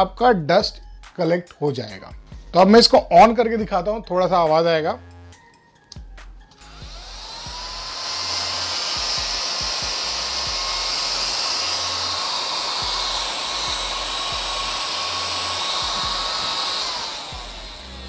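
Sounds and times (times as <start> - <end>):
small vacuum cleaner motor whining: 6.5 - 18.0.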